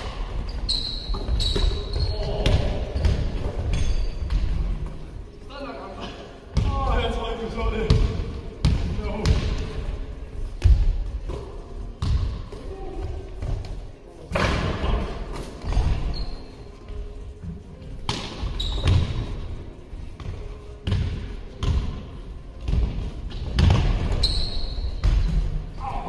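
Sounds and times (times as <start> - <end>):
sneakers squeaking: 0.0 - 5.0, 10.6 - 13.8, 15.5 - 19.6, 22.6 - 25.8
basketball bouncing on gym floor: 7.9 - 9.6, 12.0 - 12.4, 18.1 - 19.2, 20.2 - 22.0, 22.6 - 24.4.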